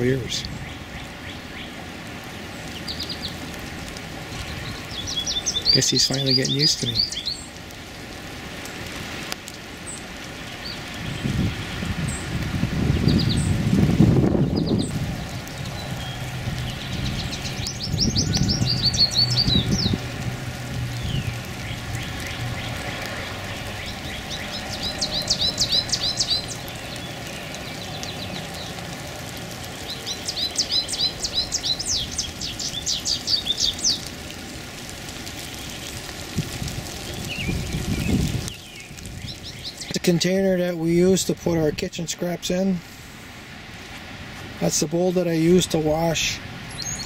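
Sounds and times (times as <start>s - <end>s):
songbird singing: 0.0s - 8.1s, 9.4s - 34.4s, 35.2s - 36.1s, 36.9s - 42.8s, 44.6s - 47.0s
low rumble: 13.6s - 25.2s.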